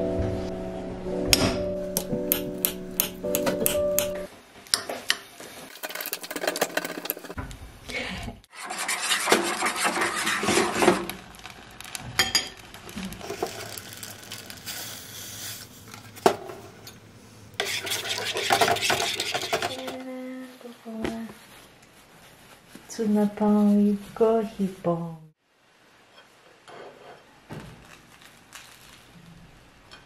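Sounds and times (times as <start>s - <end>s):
spoon stirring in metal saucepan: 1.9s - 7.4s, 8.5s - 11.0s, 17.6s - 20.0s
spoon scraping ceramic bowl: 17.6s - 20.0s.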